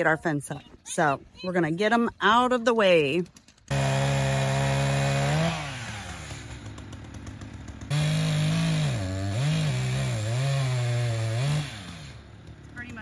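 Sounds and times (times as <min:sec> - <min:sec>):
chainsaw revving: 0:03.7 - 0:13.0.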